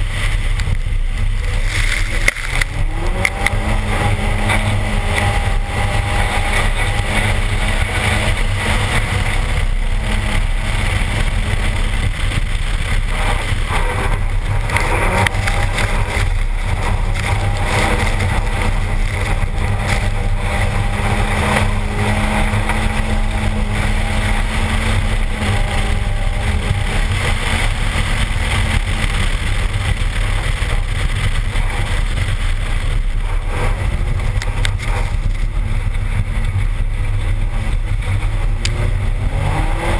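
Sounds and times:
car engine running hard: 0.0s - 39.9s
wind buffeting microphone: 0.0s - 39.9s.

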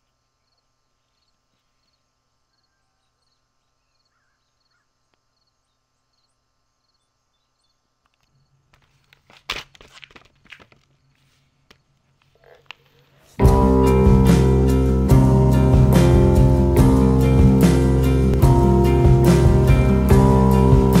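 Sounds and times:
low hum: 13.4s - 21.0s.

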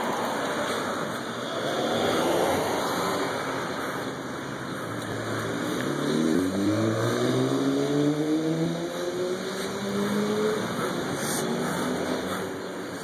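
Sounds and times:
street noise hiss: 0.0s - 13.0s
car engine accelerating: 5.1s - 12.6s.

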